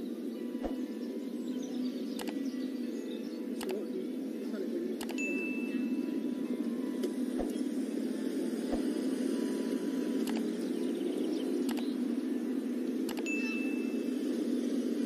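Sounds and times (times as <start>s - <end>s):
faint clicks: 2.2s - 2.4s, 3.6s - 3.8s, 10.2s - 10.5s, 11.7s - 11.9s, 13.1s - 13.3s.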